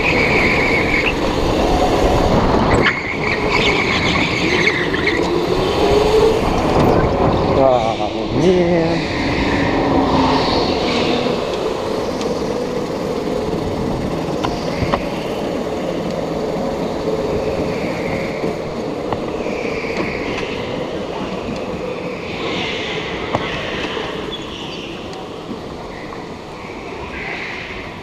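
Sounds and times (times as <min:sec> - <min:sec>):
go-kart motor hum: 0:00.0 - 0:26.9
chassis and tyre noise: 0:00.0 - 0:28.0
sharp ticks: 0:11.4 - 0:16.2.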